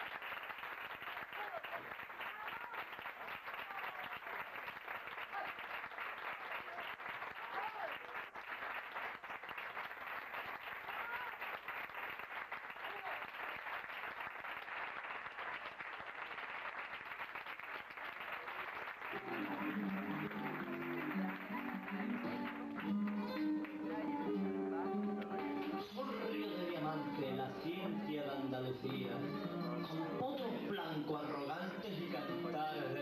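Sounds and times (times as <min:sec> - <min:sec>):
audience applauding: 0:00.0 - 0:33.0
flamenco guitar plucking: 0:19.2 - 0:33.0.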